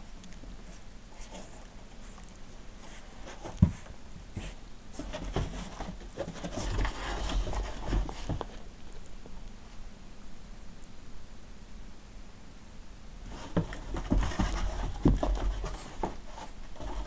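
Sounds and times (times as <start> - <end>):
dog paws scuffling on carpet: 0.3 - 9.0, 13.2 - 17.0.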